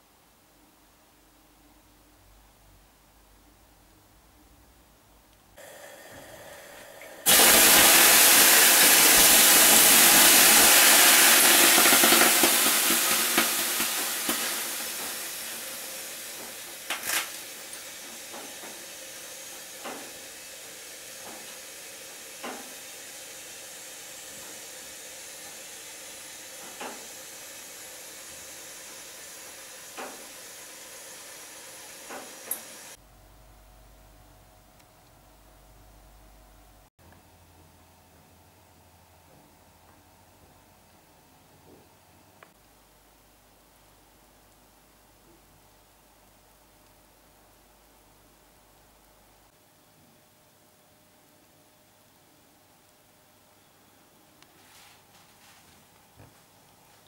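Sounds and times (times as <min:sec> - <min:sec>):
steam hissing on hot stones: 0:05.6 - 0:33.0.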